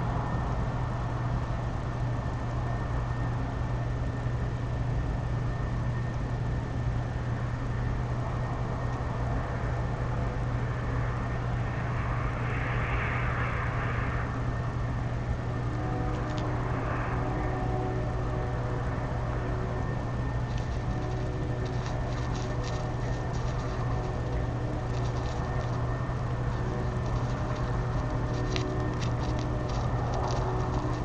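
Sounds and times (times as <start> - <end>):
city background noise: 0.0 - 31.0
low hum: 0.0 - 31.0
hissy swell: 8.1 - 31.0.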